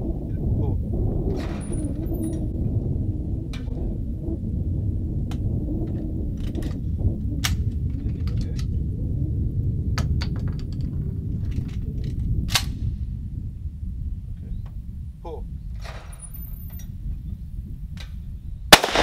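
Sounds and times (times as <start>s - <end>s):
low rumble: 0.0s - 19.0s
shotgun action metallic clicks: 18.8s - 19.0s.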